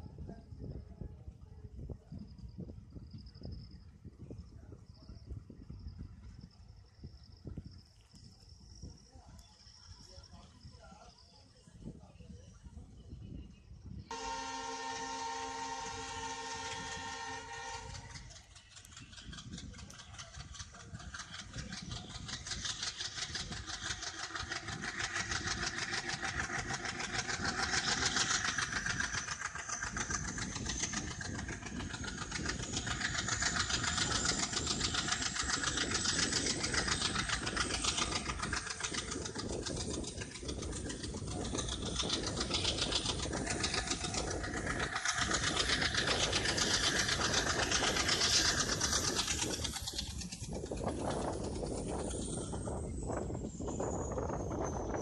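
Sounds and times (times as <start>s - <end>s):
diesel locomotive engine chugging: 0.0s - 55.0s
moving train running noise: 0.0s - 55.0s
turbocharger whine: 14.1s - 55.0s.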